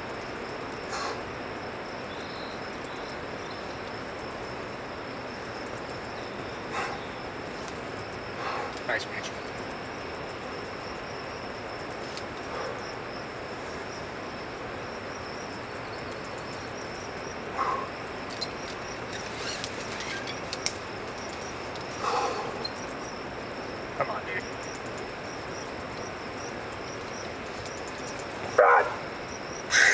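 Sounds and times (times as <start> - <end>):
insects trilling: 0.0 - 29.9
outdoor ambient hiss: 0.0 - 29.9
sharp clicks: 20.5 - 21.9.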